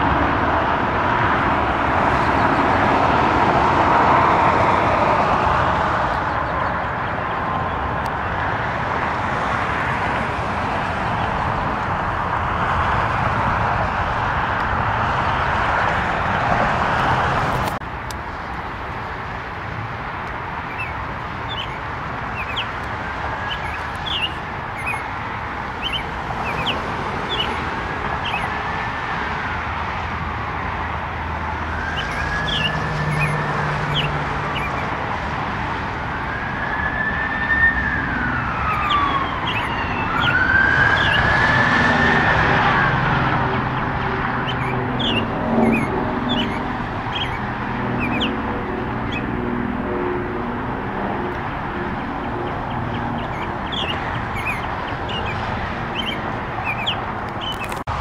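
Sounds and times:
siren wailing: 0:20.7 - 0:28.8, 0:31.5 - 0:57.8
steady background rush: 0:38.0 - 0:58.0.

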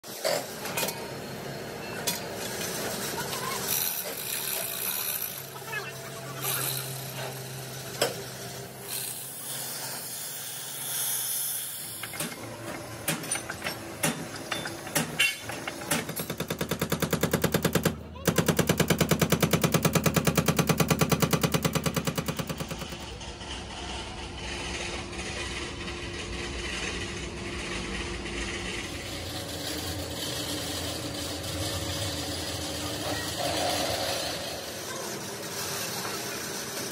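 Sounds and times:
hydraulic breaker hammering: 0:12.0 - 0:23.2.

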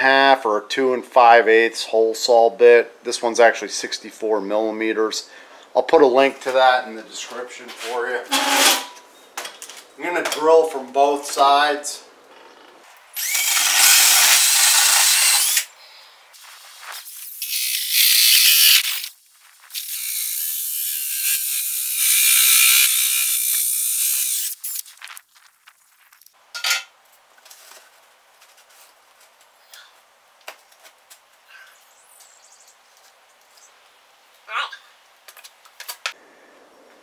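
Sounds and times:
drill cutting with hole saw: 0:13.2 - 0:15.7, 0:17.3 - 0:19.0, 0:19.8 - 0:24.6.

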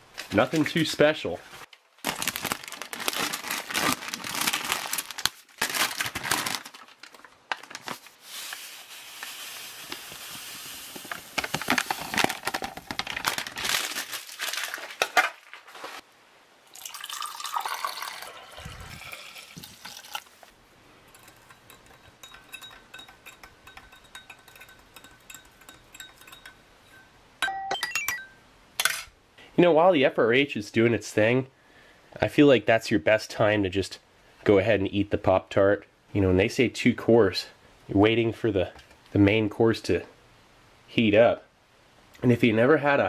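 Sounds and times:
foil pouch crinkling and tearing: 0:02.0 - 0:10.3, 0:10.9 - 0:16.0
water poured into a glass: 0:16.7 - 0:20.4
spoon stirring in a glass: 0:21.1 - 0:27.1.

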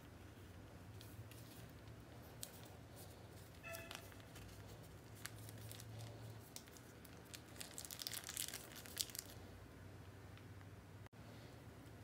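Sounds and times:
plastic sachet crinkling: 0:02.3 - 0:09.5.

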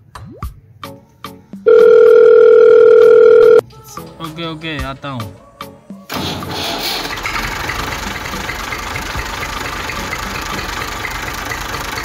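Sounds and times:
mini tractor motor running: 0:07.0 - 0:12.0.

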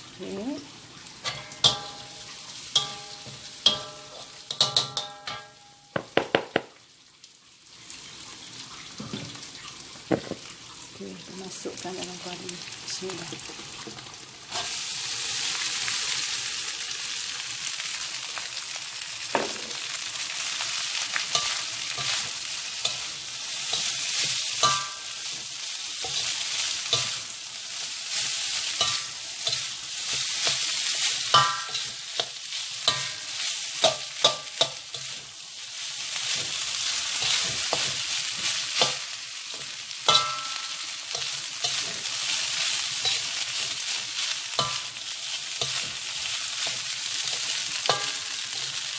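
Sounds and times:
rice sizzling in a wok: 0:00.0 - 0:48.9
spatula scraping wok: 0:19.8 - 0:48.9.

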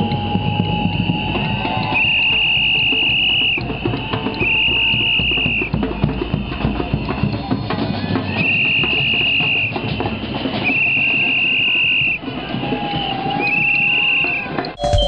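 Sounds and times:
high whistle blasts: 0:13.0 - 0:15.0
drums beaten with mallets: 0:14.8 - 0:15.0.

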